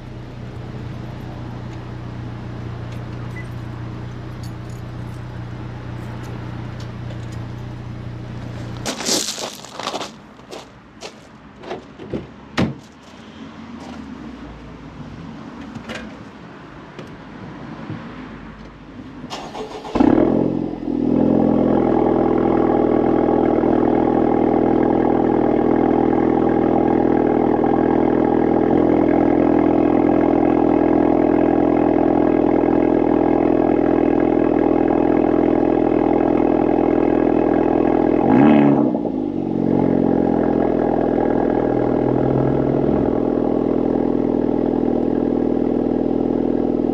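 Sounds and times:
car engine starting and idling: 0.0 - 13.2, 18.5 - 46.9
engine revving: 19.3 - 46.9.

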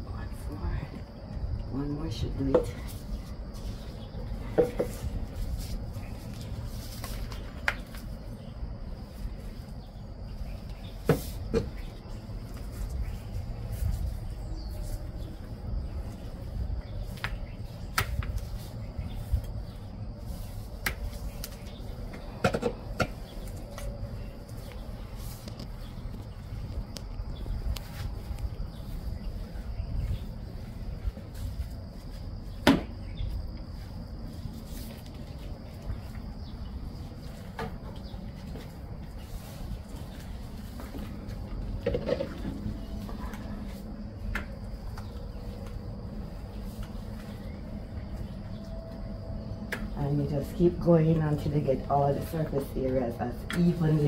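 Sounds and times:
paint roller rolling on concrete: 2.5 - 22.3, 33.7 - 48.3.

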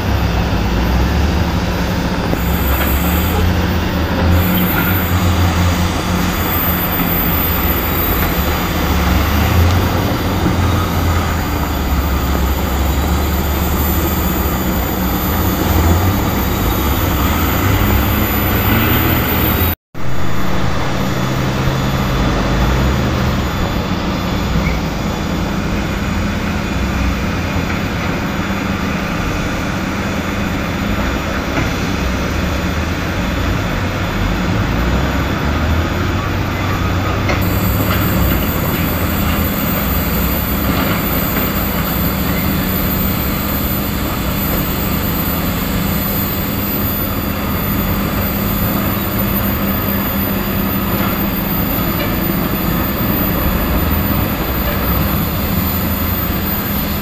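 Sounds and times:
low hum: 0.0 - 29.4
mechanical rumble and hiss: 37.3 - 57.0.

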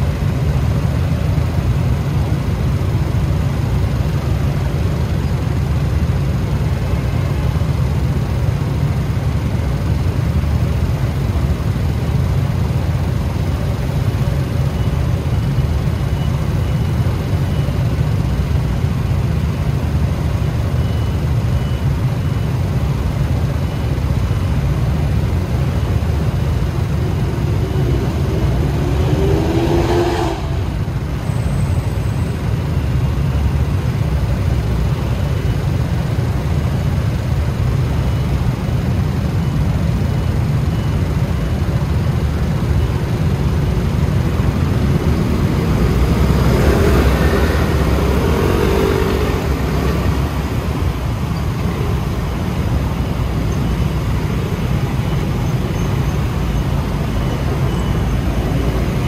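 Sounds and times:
wind and road noise: 0.0 - 59.0
scooter engine revving: 25.8 - 31.3.

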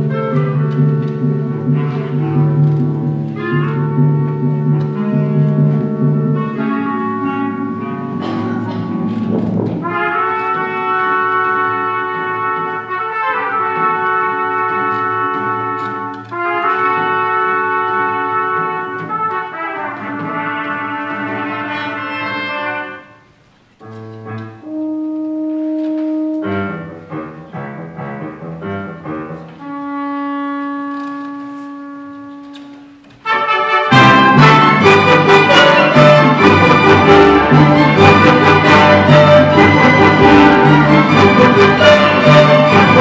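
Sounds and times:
symphony orchestra playing: 0.0 - 23.3, 24.3 - 43.0.

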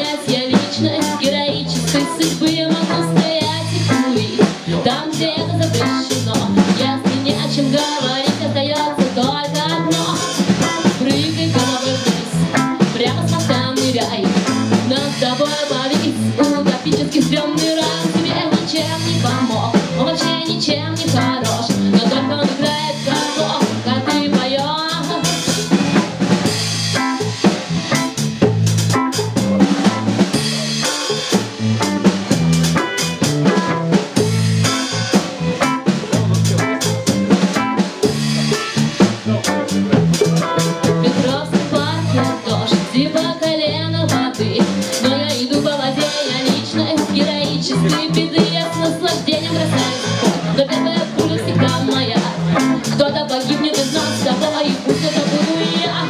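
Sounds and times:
woman singing: 0.0 - 26.2, 40.8 - 56.0
live band playing: 0.0 - 56.0.

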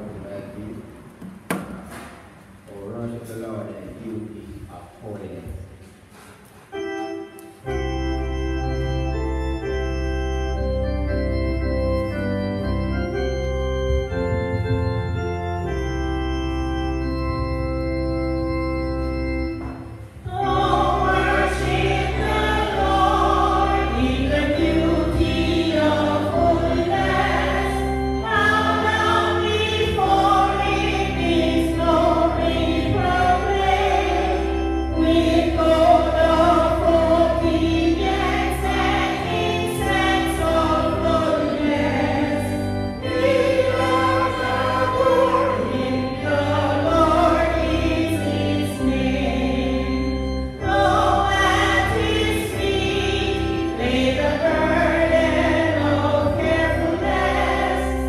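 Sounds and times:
organ playing held chords: 6.6 - 58.0
group singing a hymn: 20.3 - 58.0.

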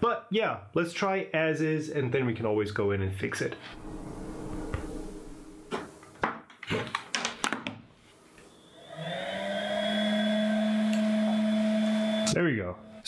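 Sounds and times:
electric hum rising in pitch: 3.7 - 6.0.

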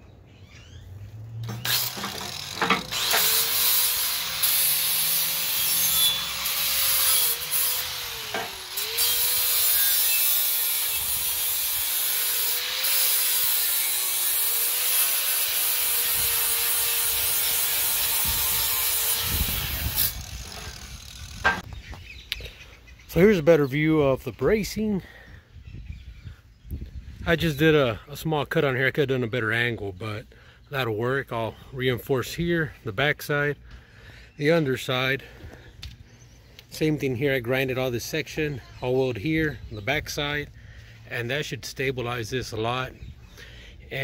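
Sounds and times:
angle grinder grinding steel: 1.3 - 21.7.

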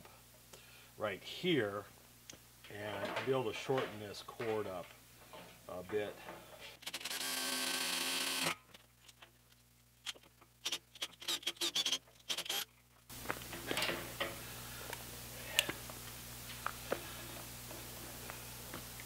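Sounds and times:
cordless drill running: 6.8 - 8.6.

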